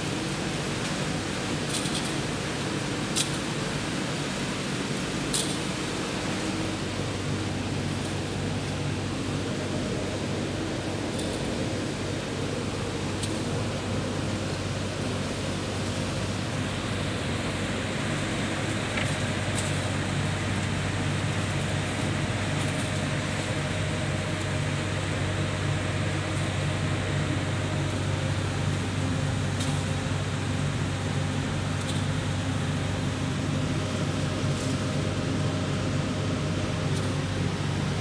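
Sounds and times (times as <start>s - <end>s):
low electrical hum: 0.0s - 38.0s.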